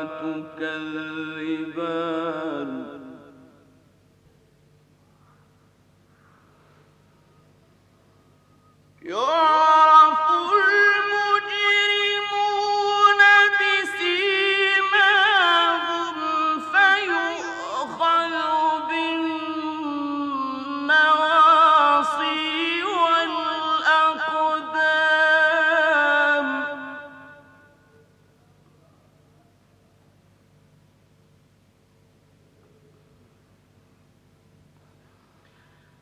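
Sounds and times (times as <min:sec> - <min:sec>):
man chanting melodically: 0:00.0 - 0:03.7, 0:09.0 - 0:27.8.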